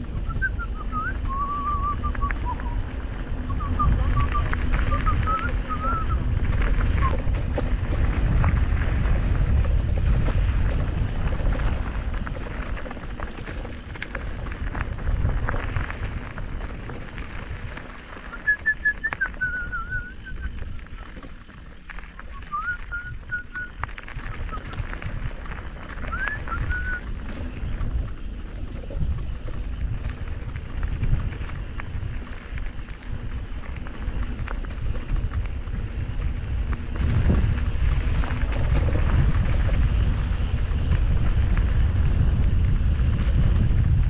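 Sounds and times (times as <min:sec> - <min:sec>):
bike rattling clicks: 0:00.0 - 0:44.0
wind rumble on microphone: 0:00.0 - 0:44.0
short wavering whistle: 0:00.2 - 0:02.8, 0:03.5 - 0:06.2, 0:18.3 - 0:20.5, 0:22.3 - 0:23.8, 0:26.1 - 0:27.0.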